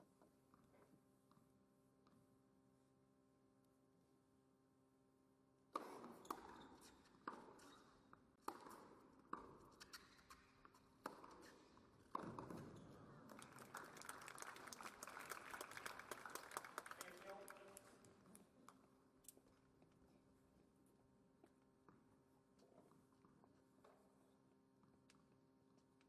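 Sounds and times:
racquets striking tennis ball: 0:08.4 - 0:12.8
crowd applauding: 0:13.2 - 0:18.1.

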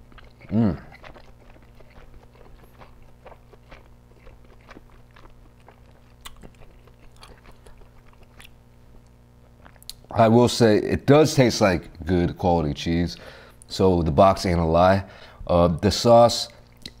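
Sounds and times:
person chewing: 0:00.0 - 0:10.2, 0:16.6 - 0:17.0.

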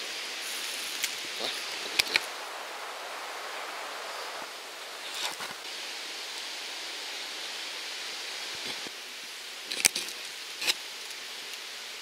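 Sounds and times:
rustling through undergrowth: 0:00.0 - 0:07.3
outdoor hiss: 0:00.0 - 0:12.0.

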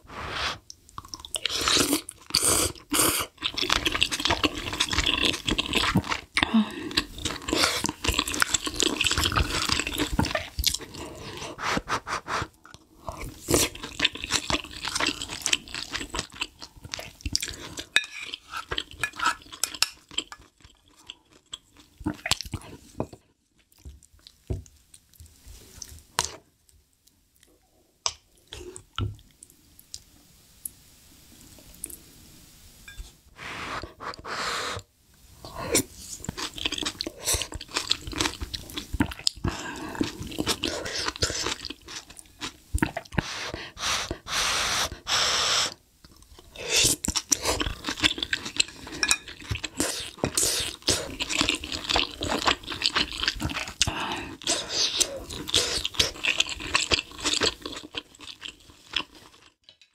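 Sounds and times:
wet chewing: 0:00.9 - 0:11.0, 0:36.2 - 0:44.3, 0:46.1 - 0:59.6
slurping broth: 0:33.4 - 0:34.8, 0:42.9 - 0:45.8.

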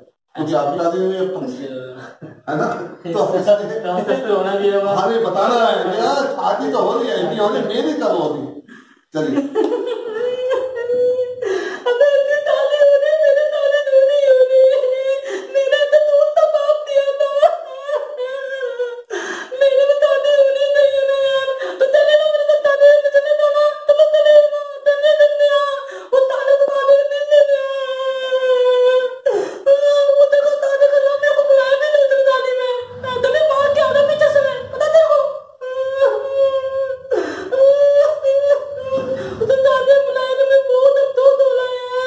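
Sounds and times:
man wailing and crying: 0:09.8 - 0:22.5, 0:29.7 - 0:42.0.

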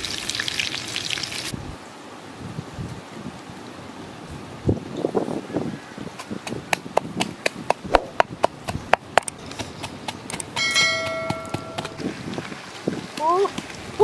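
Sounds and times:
pestle pounding in a mortar: 0:06.4 - 0:12.0.

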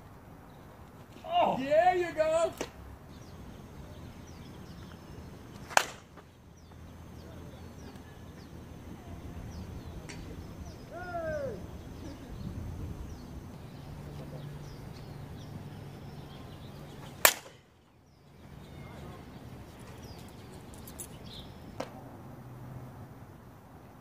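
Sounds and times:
birds chirping faintly: 0:00.2 - 0:21.9
bat hitting softball: 0:05.6 - 0:06.2, 0:17.2 - 0:17.6.

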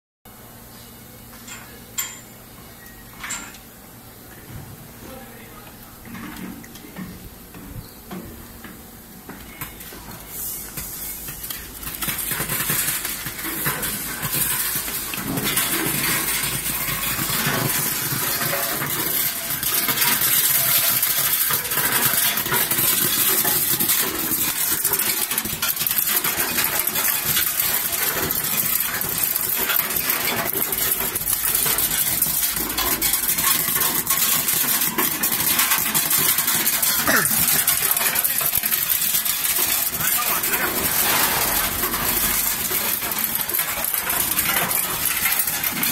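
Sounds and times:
nuts rattling on metal chutes: 0:01.5 - 0:02.4, 0:10.7 - 0:45.9.

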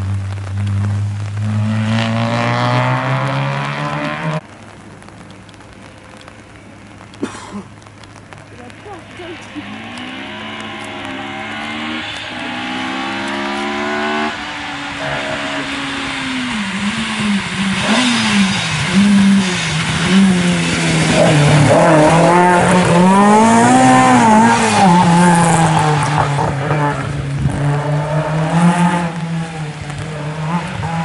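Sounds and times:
rally car engine revving: 0:00.0 - 0:04.4, 0:09.4 - 0:31.0
tyres hissing on wet road: 0:00.0 - 0:31.0.

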